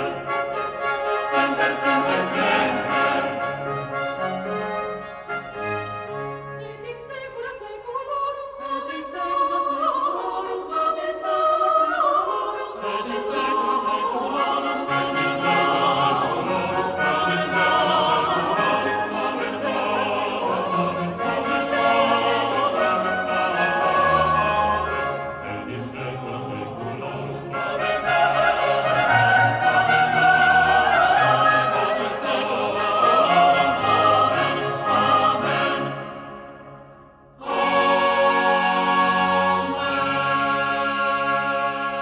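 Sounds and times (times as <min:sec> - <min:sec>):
orchestra playing: 0:00.0 - 0:06.8, 0:14.5 - 0:40.5
choir singing: 0:00.0 - 0:36.8, 0:37.4 - 0:42.0.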